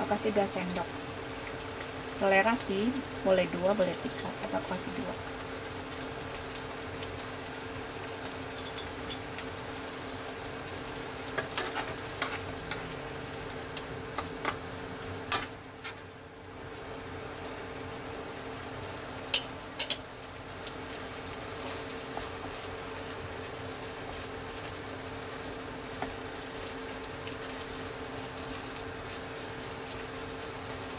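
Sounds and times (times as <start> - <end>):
metal spoon scraping a wok: 11.4 - 12.5.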